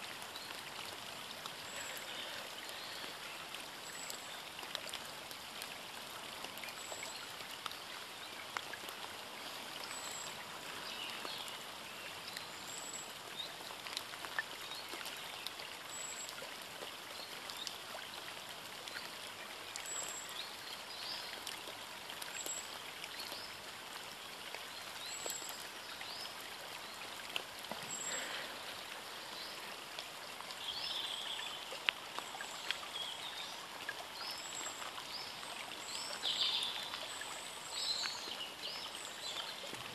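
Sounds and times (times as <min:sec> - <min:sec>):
outdoor background hiss: 0:00.0 - 0:39.7.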